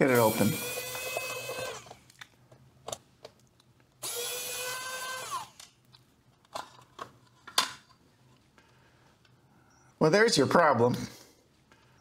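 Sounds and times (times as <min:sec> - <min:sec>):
electric screwdriver whining: 0:00.2 - 0:02.0, 0:04.0 - 0:05.7.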